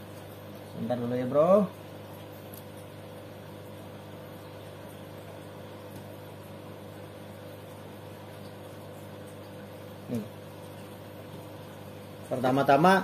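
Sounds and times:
aquarium air pumps humming: 0:00.0 - 0:13.0.

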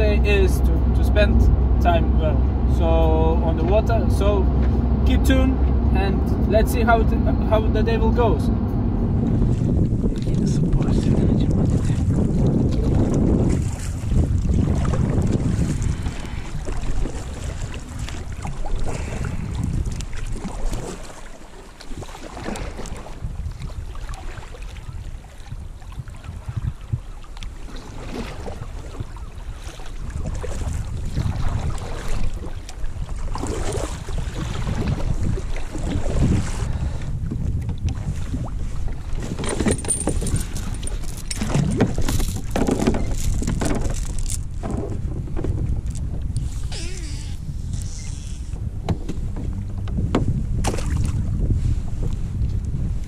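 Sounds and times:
wind buffeting microphone: 0:00.0 - 0:53.0
water splashing and lapping: 0:09.1 - 0:53.0
metallic clinks and rattles: 0:39.4 - 0:44.4.

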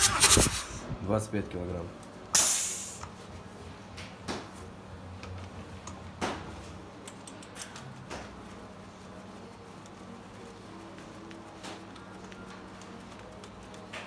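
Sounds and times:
tools clicking and knocking: 0:07.0 - 0:07.9.

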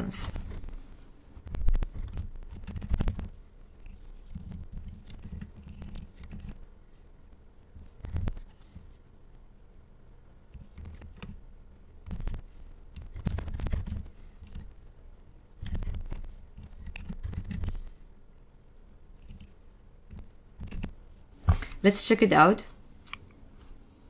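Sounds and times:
computer keyboard typing: 0:01.5 - 0:06.6, 0:12.0 - 0:14.8, 0:15.6 - 0:17.9, 0:19.2 - 0:21.0.

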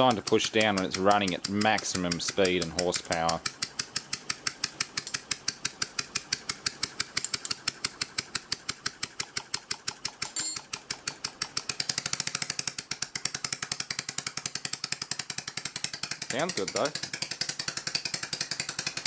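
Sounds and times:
compressor ticking: 0:00.0 - 0:09.5
metallic clink: 0:07.2 - 0:07.6, 0:10.2 - 0:10.6.

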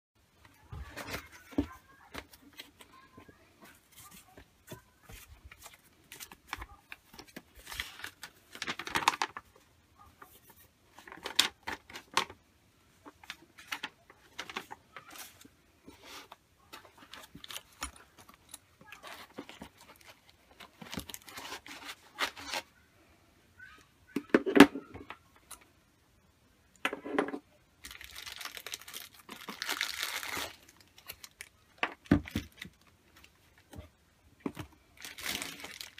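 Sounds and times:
cardboard and foam rustling: 0:00.5 - 0:12.4, 0:13.0 - 0:22.8, 0:27.8 - 0:35.9.

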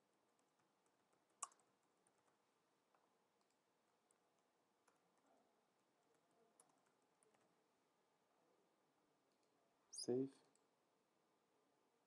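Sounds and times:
keyboard and mouse clicks: 0:00.4 - 0:05.2.

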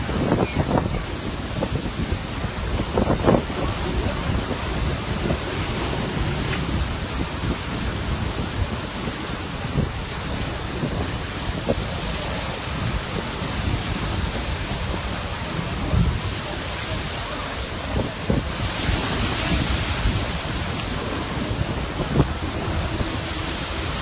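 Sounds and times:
surf rushing: 0:00.0 - 0:24.0
wind rumbling on microphone: 0:00.0 - 0:24.0.

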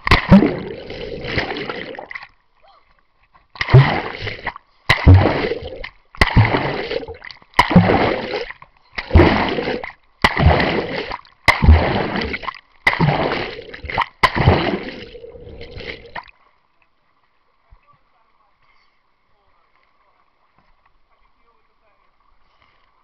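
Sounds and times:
water splashing and sloshing: 0:00.0 - 0:16.8.

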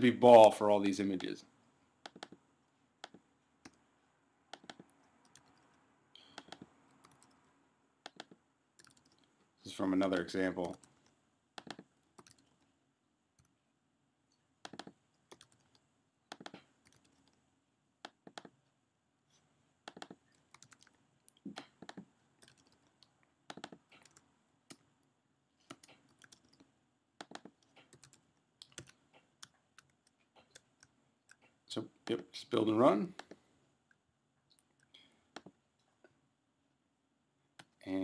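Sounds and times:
typing on computer keyboard: 0:08.1 - 0:09.2, 0:10.6 - 0:12.5, 0:14.7 - 0:17.4, 0:19.9 - 0:20.9, 0:23.5 - 0:24.2, 0:27.2 - 0:31.4.

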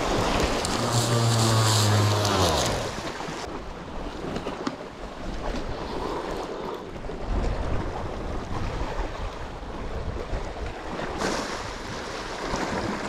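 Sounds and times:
waves washing against rocks: 0:00.0 - 0:13.0.

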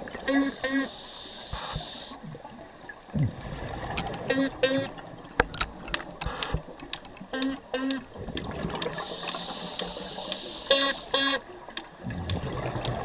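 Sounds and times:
hiss of bubbles: 0:00.4 - 0:02.2, 0:08.6 - 0:11.2
underwater clicks: 0:03.8 - 0:13.0.

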